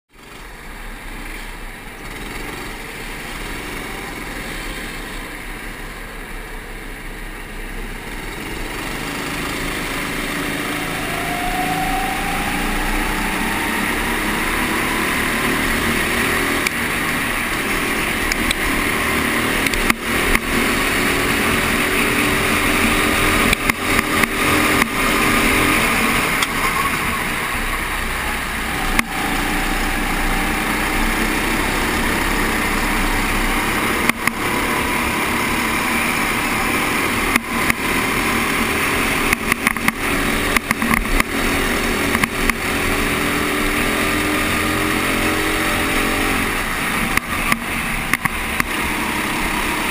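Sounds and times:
go-kart engines: 0.1s - 49.9s.

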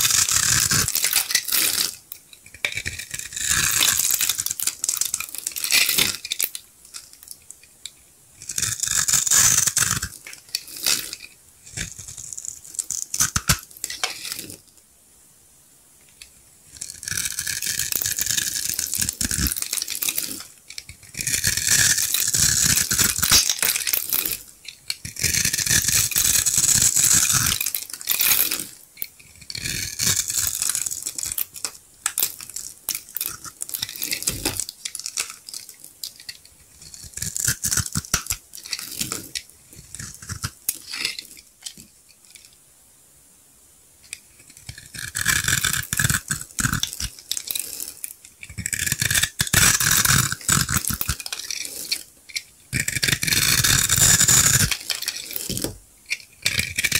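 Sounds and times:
knife blade scraping soap: 0.0s - 14.6s, 16.2s - 42.5s, 44.1s - 56.9s
soap cubes crunching: 16.8s - 41.3s, 52.8s - 56.9s.

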